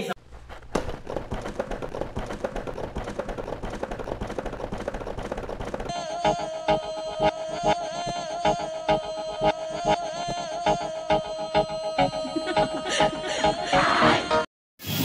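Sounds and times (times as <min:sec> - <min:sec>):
music: 0:05.9 - 0:15.0.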